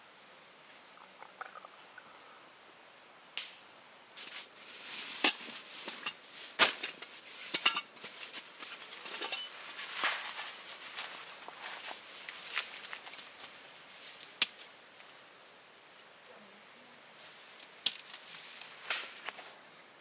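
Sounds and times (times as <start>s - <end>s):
rustling: 4.2s - 19.8s.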